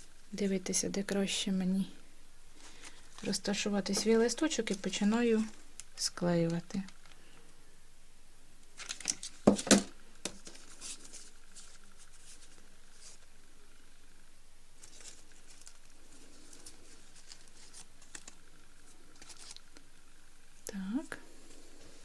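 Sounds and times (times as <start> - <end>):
foam sheets rustling: 2.5 - 5.7, 8.8 - 13.4, 14.8 - 19.8.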